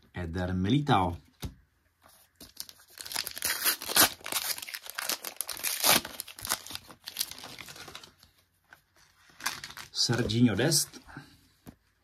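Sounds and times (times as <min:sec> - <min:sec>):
wrapper tearing and crinkling: 0:02.4 - 0:08.2, 0:09.3 - 0:10.0.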